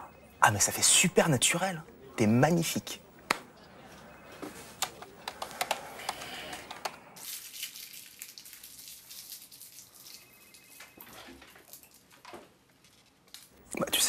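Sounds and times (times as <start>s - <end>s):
plastic wrapper crinkling: 6.5s - 13.6s.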